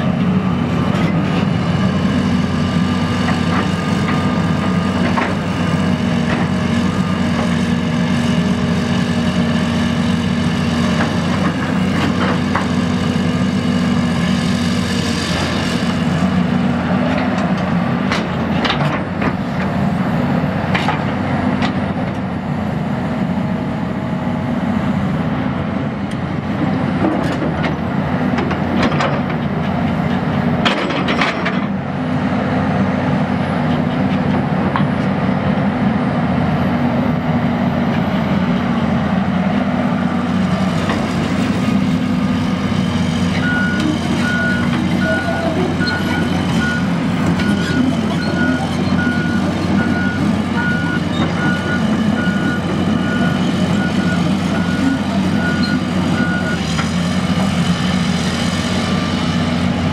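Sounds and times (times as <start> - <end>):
excavator diesel engine running: 0.0 - 59.9
metal clanks and knocks: 30.6 - 31.7.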